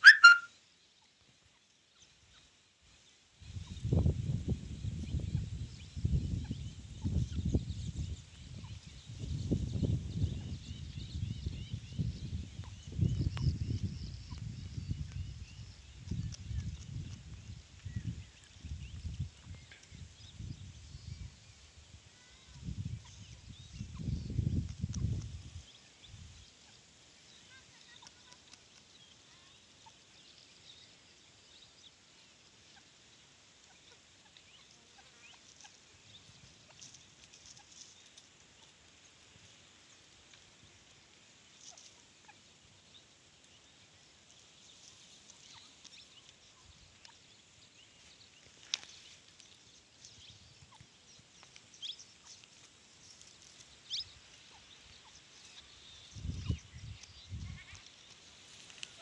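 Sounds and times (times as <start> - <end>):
high bird chirps: 0.0 - 0.5.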